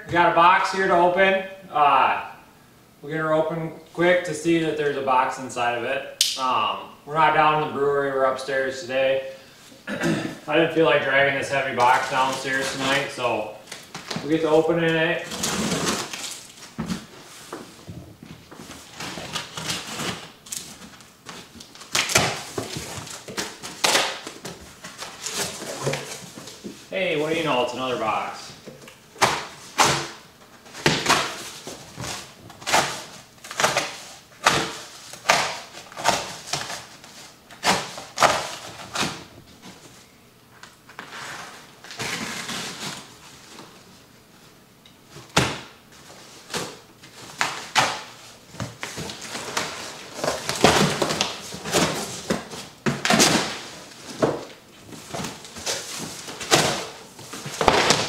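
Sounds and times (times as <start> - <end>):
cardboard box ripping: 15.2 - 16.6.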